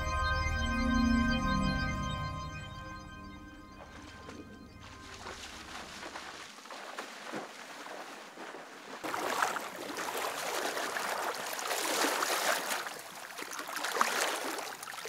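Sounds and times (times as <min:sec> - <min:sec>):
river water splashing: 0:03.7 - 0:15.0
fish splashing in landing net: 0:04.8 - 0:15.0.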